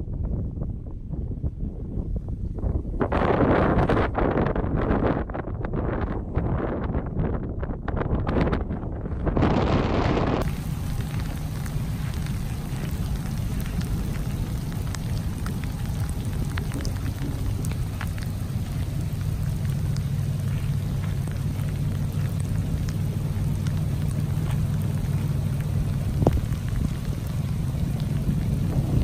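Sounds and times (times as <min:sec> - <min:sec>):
rain and floodwater rushing: 0:09.6 - 0:29.0
drops ticking: 0:10.4 - 0:29.0.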